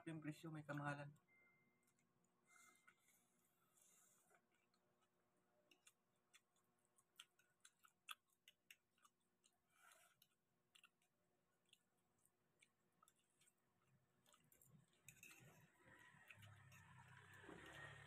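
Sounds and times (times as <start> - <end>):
chewing clicks and smacks: 4.3 - 18.0
fork on a plate: 15.0 - 15.8.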